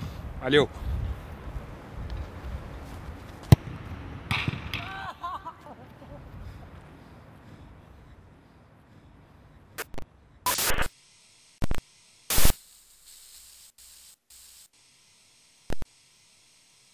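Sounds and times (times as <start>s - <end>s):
static hiss bursts: 9.8s - 16.9s.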